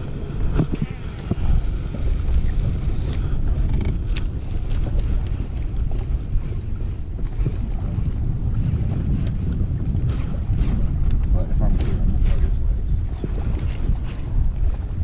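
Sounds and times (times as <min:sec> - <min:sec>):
wind on microphone: 0:00.0 - 0:15.0
fishing reel clicks: 0:00.7 - 0:04.8.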